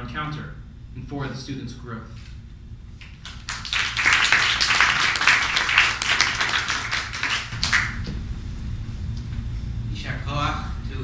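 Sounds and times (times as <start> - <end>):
audience applauding: 3.1 - 8.1.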